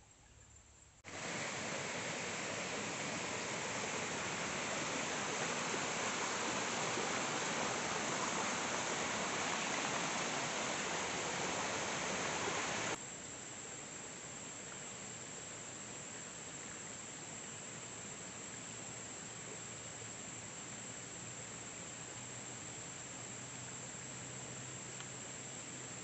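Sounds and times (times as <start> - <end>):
stream rushing over rocks: 1.0 - 13.0.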